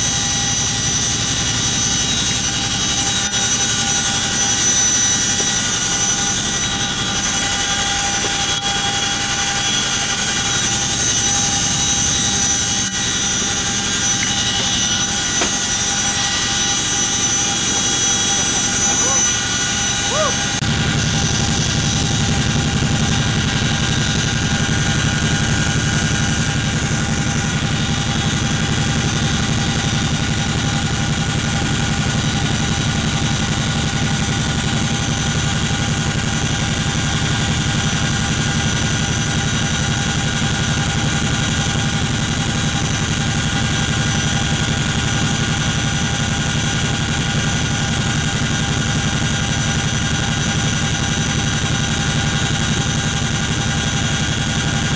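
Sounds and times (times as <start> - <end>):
high whines: 0.0 - 30.4
helicopter cabin drone: 0.0 - 54.9.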